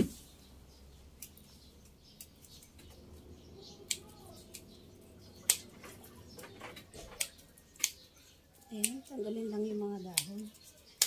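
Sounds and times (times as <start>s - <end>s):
pruning shears snipping: 3.6s - 8.1s, 8.8s - 11.0s.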